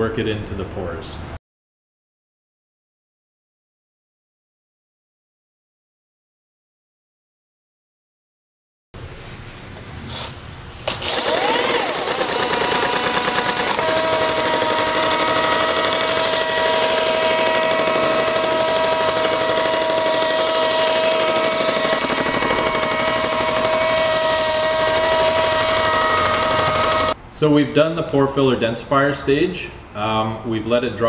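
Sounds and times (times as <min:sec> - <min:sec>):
concrete grinder whining: 0:10.9 - 0:27.2.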